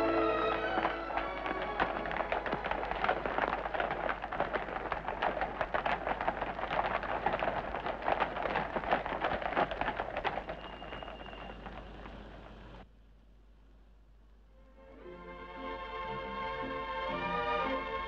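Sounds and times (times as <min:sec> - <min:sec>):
horse hooves clattering on pavement: 0:00.0 - 0:12.9.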